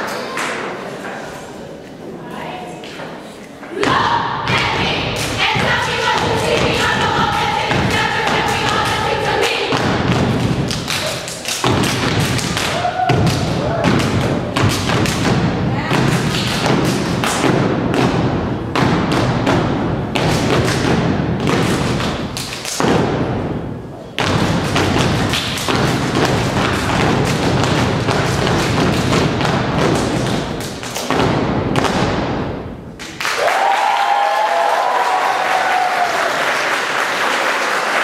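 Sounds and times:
stomping on wooden stage: 0:03.8 - 0:09.1, 0:24.2 - 0:32.6
rhythmic clapping: 0:04.5 - 0:23.5, 0:24.2 - 0:34.0
audience applause and cheers: 0:33.1 - 0:38.0.

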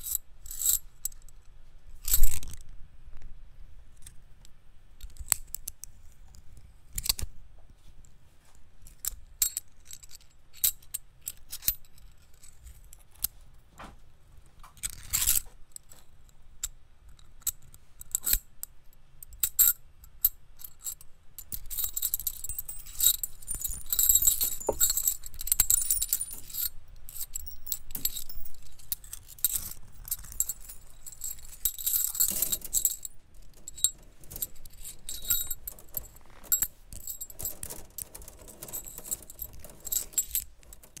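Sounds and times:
metal wires clicking and jangling: 0:20.6 - 0:41.0.

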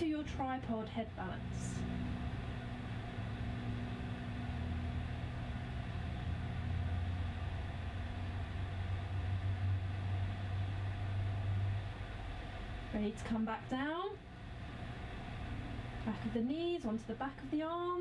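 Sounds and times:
low droning hum: 0:00.0 - 0:18.0.

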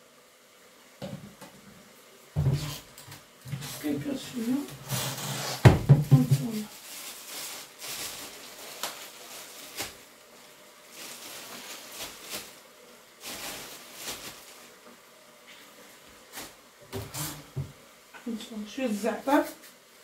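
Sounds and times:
plastic bag rustling: 0:02.4 - 0:17.7.

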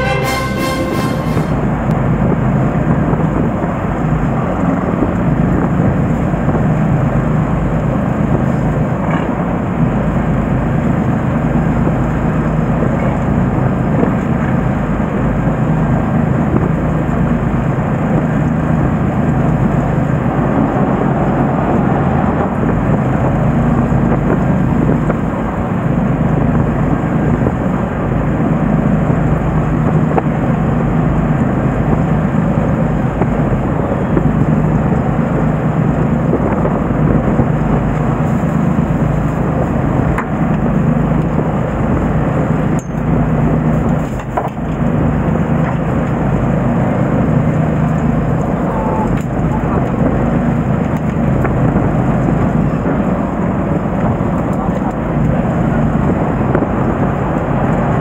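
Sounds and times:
boat engine rumbling: 0:00.0 - 0:58.0
wind: 0:00.0 - 0:58.0.

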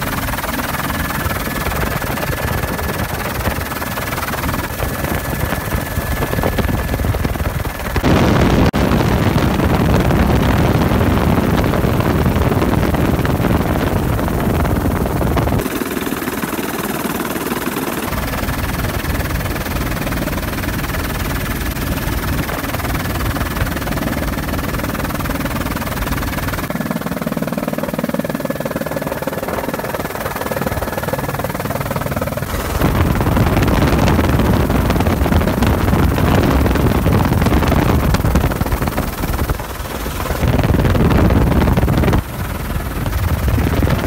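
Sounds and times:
helicopter rotor and engine: 0:00.0 - 0:44.0
rushing air: 0:32.5 - 0:44.0.

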